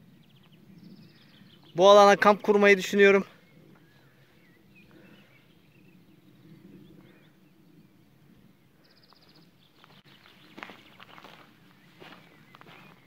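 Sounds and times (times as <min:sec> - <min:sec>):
faint bird chirps: 0:03.4 - 0:13.0.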